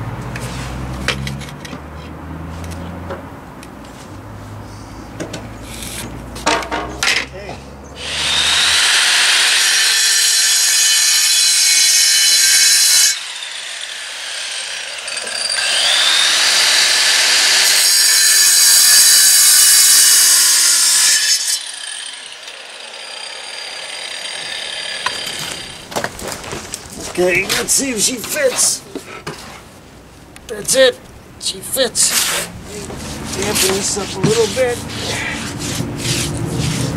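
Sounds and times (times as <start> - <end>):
angle grinder cutting stone: 8.0 - 25.9, 33.3 - 35.6.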